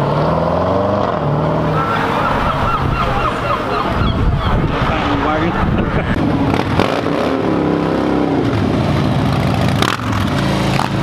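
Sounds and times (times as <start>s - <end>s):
car engine revving: 4.6s - 11.0s.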